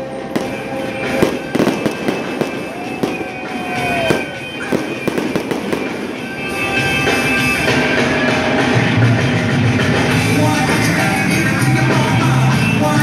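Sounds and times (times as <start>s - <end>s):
music playing: 0.0s - 13.0s
fireworks bangs and crackles: 0.1s - 9.0s.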